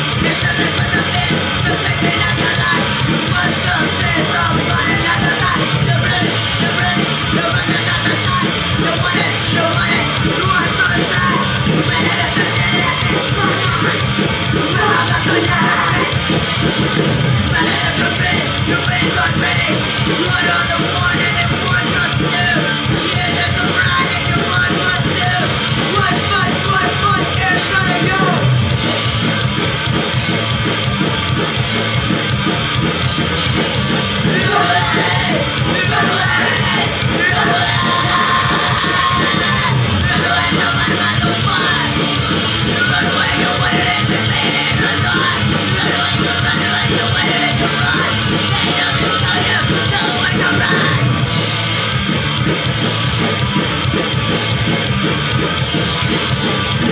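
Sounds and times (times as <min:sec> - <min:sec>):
distorted electric guitars: 0:00.0 - 0:56.9
drum kit: 0:00.0 - 0:56.9
person yelling vocals: 0:14.7 - 0:16.2, 0:34.3 - 0:40.3.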